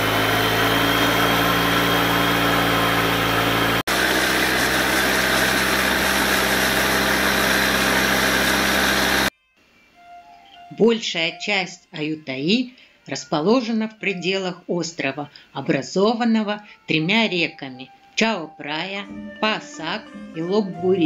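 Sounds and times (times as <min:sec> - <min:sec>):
boat engine droning: 0:00.0 - 0:09.3.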